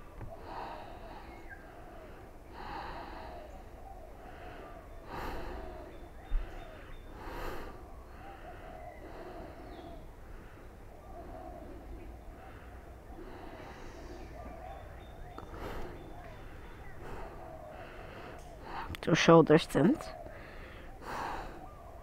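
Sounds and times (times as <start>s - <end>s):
woman breathing: 0.0s - 19.0s, 20.1s - 22.0s.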